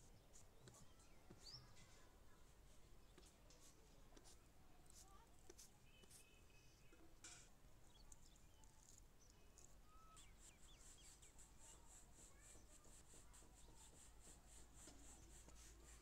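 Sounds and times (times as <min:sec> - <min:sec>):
faint bird chirps: 0:00.0 - 0:03.8, 0:05.8 - 0:16.0.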